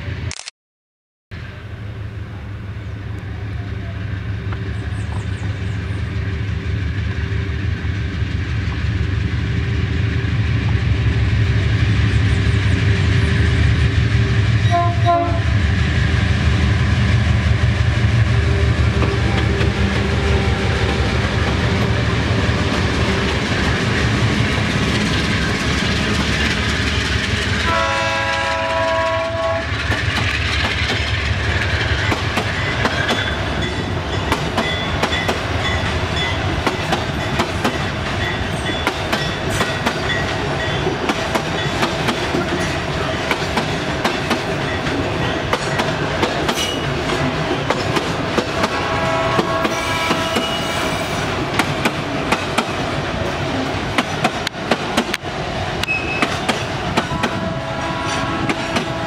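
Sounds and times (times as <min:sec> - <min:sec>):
diesel locomotive rumble: 0:01.4 - 0:59.0
train horn blast: 0:14.2 - 0:15.7, 0:27.6 - 0:29.8, 0:48.6 - 0:51.3, 0:57.0 - 0:59.0
wheels clattering on rails: 0:18.9 - 0:28.6, 0:29.7 - 0:48.8, 0:51.2 - 0:57.4.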